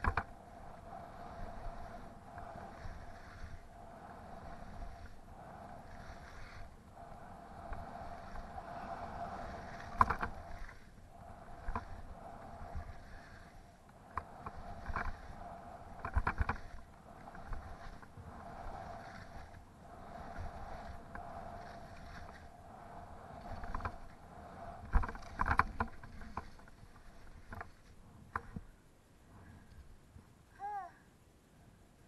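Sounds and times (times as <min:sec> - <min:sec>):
sharp clicks and knocks: 0:00.0 - 0:00.3
skis scraping on snow: 0:00.0 - 0:28.7.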